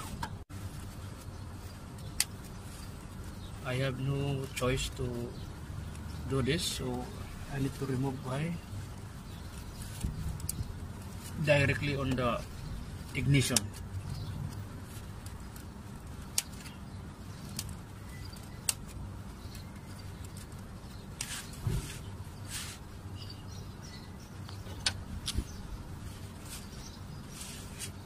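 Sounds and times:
faint steady background noise: 0.0s - 28.0s
hands rustling: 6.9s - 23.1s, 25.3s - 28.0s.

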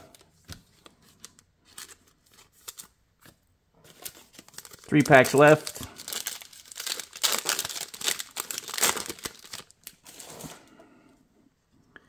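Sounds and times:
foil wrapper crinkling: 3.8s - 10.5s.

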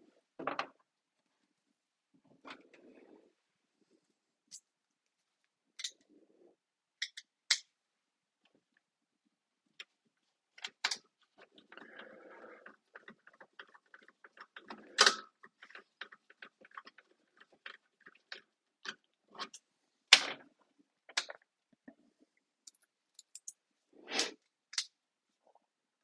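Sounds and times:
light clicks and taps of handling: 22.6s - 23.6s.

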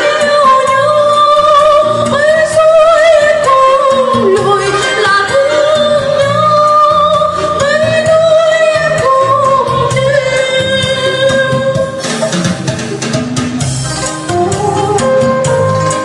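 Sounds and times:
instrumental backing: 0.0s - 16.0s
person singing long wavering notes: 0.6s - 8.0s.

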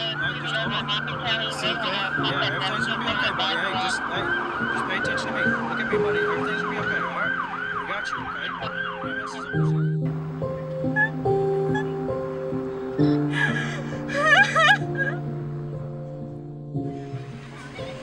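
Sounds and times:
emergency siren yelping: 0.0s - 12.3s
slow background music: 0.0s - 18.0s.

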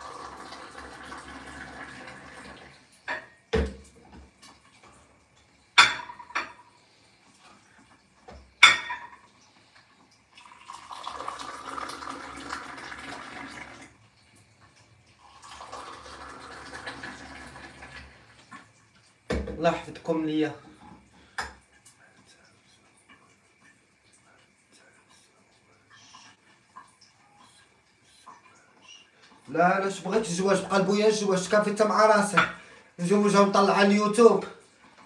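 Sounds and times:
tea pouring into glasses: 0.0s - 3.2s, 10.2s - 14.1s, 15.2s - 18.7s
glassware clinking: 5.8s - 6.6s, 8.6s - 9.2s.

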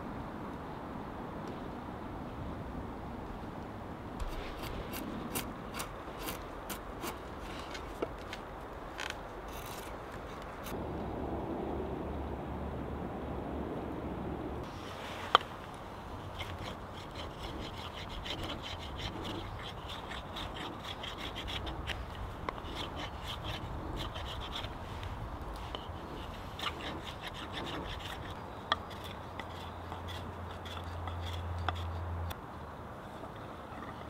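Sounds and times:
knife scraping wooden stick: 4.2s - 8.4s, 9.0s - 10.8s, 16.2s - 32.1s.

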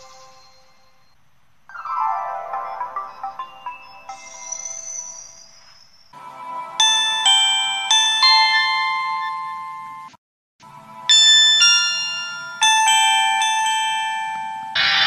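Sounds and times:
phone chime melody: 1.8s - 6.0s, 6.8s - 10.2s, 11.1s - 15.0s.

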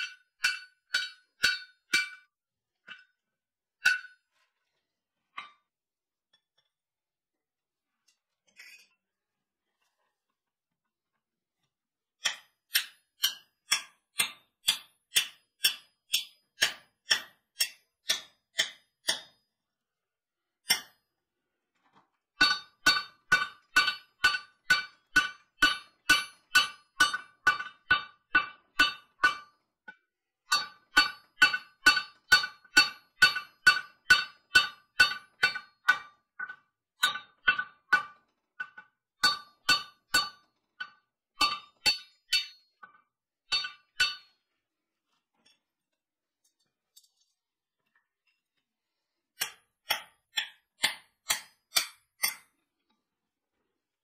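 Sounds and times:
hammer striking hot steel: 0.0s - 2.3s, 3.9s - 4.2s, 12.2s - 19.4s, 20.7s - 21.0s, 22.4s - 29.5s, 30.5s - 37.7s, 39.2s - 42.6s, 43.5s - 44.3s, 49.4s - 52.5s.

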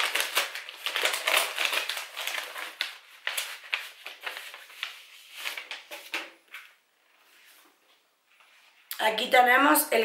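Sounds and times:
paper envelope tearing and rustling: 0.0s - 6.3s.

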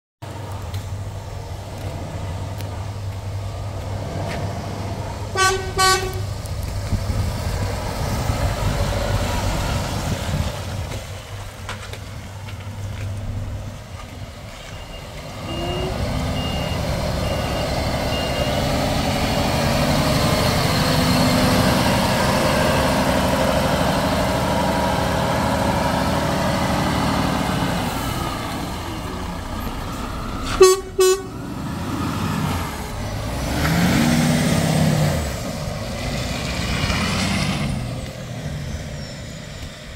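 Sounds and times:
truck diesel engine running: 0.2s - 39.9s
truck horn toots: 5.3s - 6.4s, 15.4s - 17.5s, 30.5s - 31.5s.

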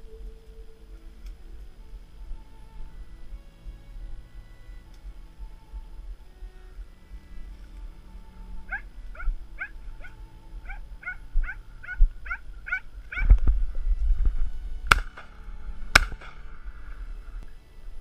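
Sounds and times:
dog yelping: 8.7s - 13.3s.

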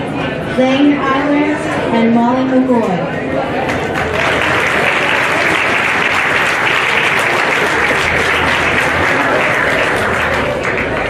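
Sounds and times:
crowd applauding: 3.6s - 11.0s.

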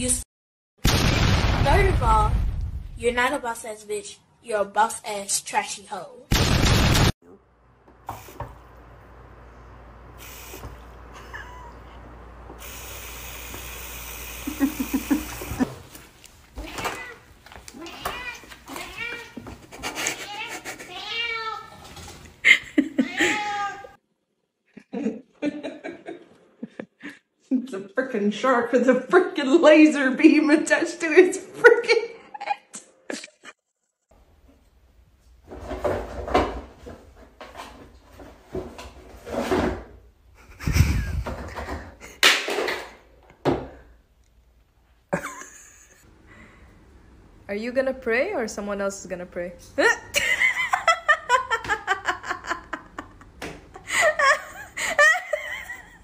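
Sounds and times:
faucet water running: 10.2s - 10.8s, 12.6s - 15.7s.

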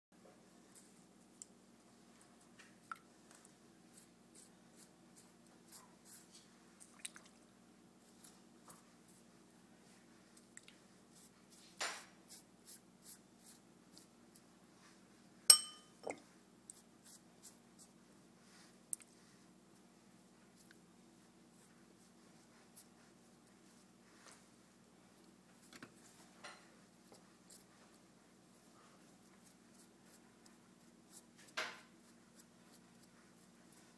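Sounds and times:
pastry brush dabbing: 3.4s - 6.6s, 8.0s - 14.9s, 15.5s - 33.9s
sharp tap with ring: 15.5s - 16.1s.

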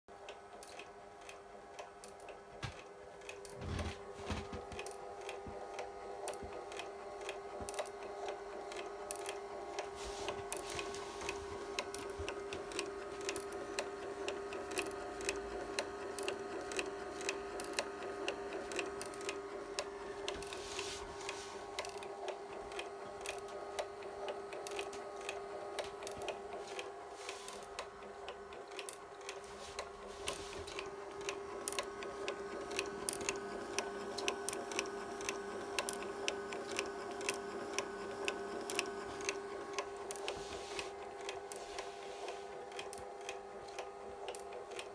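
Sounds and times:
scanner motor humming: 2.6s - 44.9s
frame-advance mechanism clicking: 18.5s - 23.9s, 24.5s - 37.4s.

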